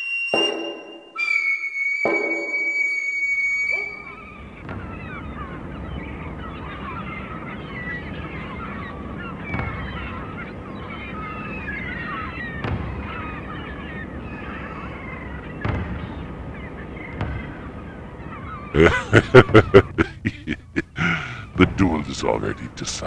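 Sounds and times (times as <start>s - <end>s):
flock of birds calling: 0.0s - 23.0s
low thumps: 15.6s - 23.0s.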